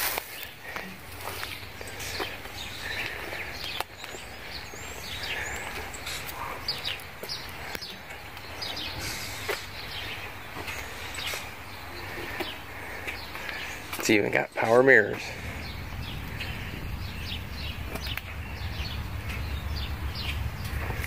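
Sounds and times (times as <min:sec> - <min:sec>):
small birds chirping: 0:00.0 - 0:21.0
steady low rumble: 0:14.7 - 0:21.0.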